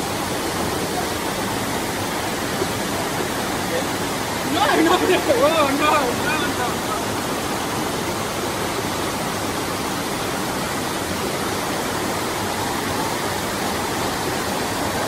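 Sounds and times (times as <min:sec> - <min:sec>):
waterfall roaring: 0:00.0 - 0:15.0.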